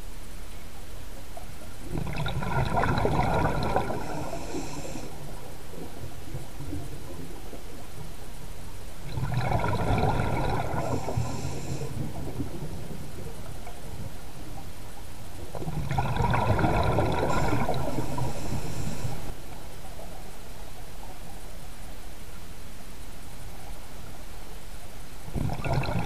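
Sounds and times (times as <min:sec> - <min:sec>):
steady background hiss: 0:00.0 - 0:26.0
exhaust bubbles bursting: 0:01.8 - 0:04.3, 0:09.1 - 0:11.2, 0:15.6 - 0:18.4, 0:25.3 - 0:26.0
diver breathing through regulator: 0:03.3 - 0:05.4, 0:10.2 - 0:12.4, 0:16.6 - 0:19.4.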